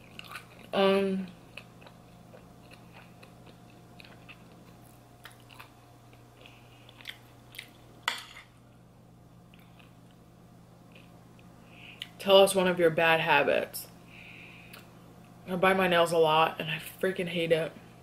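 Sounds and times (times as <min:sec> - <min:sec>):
person chewing: 0:00.0 - 0:07.9, 0:09.5 - 0:10.2, 0:10.9 - 0:12.2
faint hum: 0:00.0 - 0:18.0.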